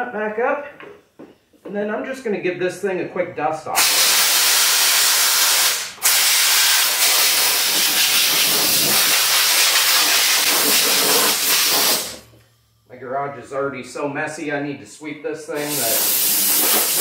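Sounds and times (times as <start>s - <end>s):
compressed air blow gun hissing: 3.8s - 12.2s, 15.6s - 17.0s.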